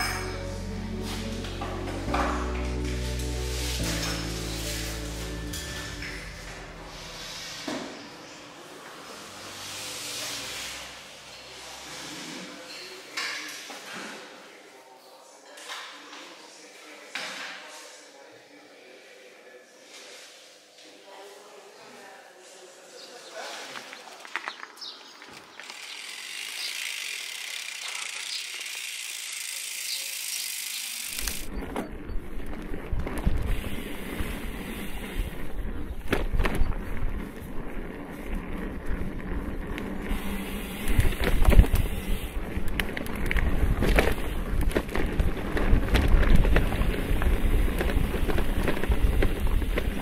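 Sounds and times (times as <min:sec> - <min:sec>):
bike tyre rumble: 0:00.5 - 0:12.2, 0:23.9 - 0:50.0
bike knocks and rattles: 0:34.3 - 0:50.0
wind noise: 0:40.0 - 0:50.0.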